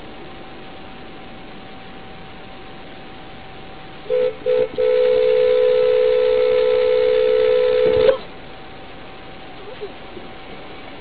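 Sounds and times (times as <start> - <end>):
car horn honking: 4.1 - 8.2.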